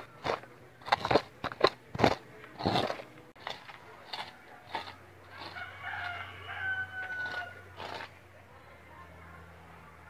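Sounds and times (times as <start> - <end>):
dustpan scraping ash and soil: 0.0 - 8.2
rooster crowing: 5.3 - 7.7.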